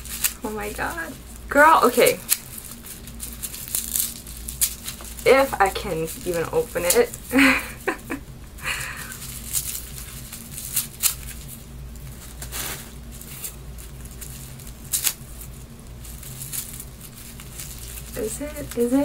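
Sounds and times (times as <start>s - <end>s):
paper tearing and rustling: 0.0s - 8.2s, 8.9s - 19.0s
low hum: 0.0s - 19.0s.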